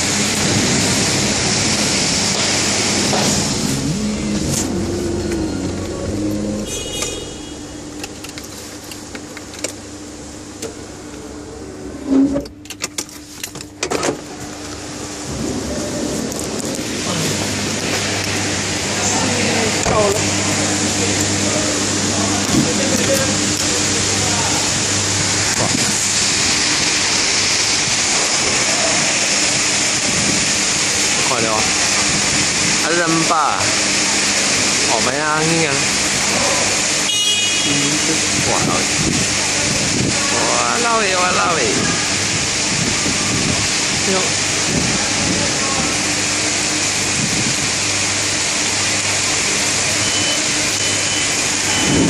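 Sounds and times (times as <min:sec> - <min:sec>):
strong wind: 0:00.0 - 0:07.0, 0:14.3 - 0:32.8, 0:38.2 - 0:40.6, 0:41.4 - 0:48.9, 0:51.7 - 0:52.0
heavy rain: 0:00.0 - 0:11.9, 0:14.2 - 0:52.0.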